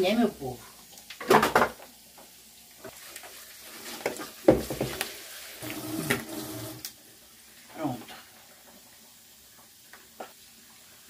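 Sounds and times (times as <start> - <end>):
pork sizzling in fat: 0.0 - 11.0
dishes clattering in sink: 1.2 - 1.8, 4.1 - 5.0.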